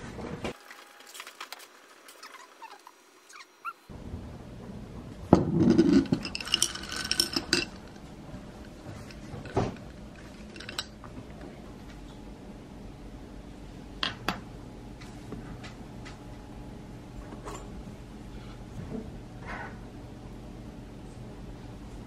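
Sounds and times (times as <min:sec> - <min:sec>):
glass straw stirring ice: 0:05.7 - 0:08.0, 0:10.1 - 0:11.0.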